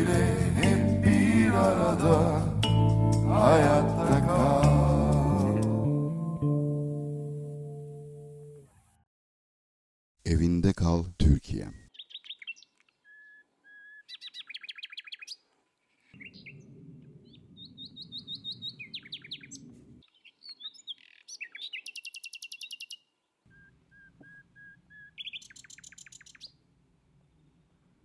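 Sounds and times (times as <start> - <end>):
birds chirping and trilling: 11.7 - 27.9.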